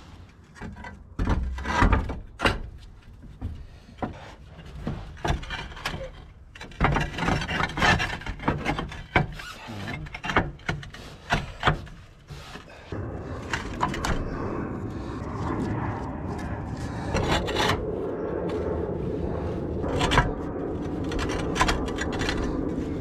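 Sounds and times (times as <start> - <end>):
clay roof tiles knocking: 0.6 - 12.1
rough scraping rub: 7.0 - 23.0.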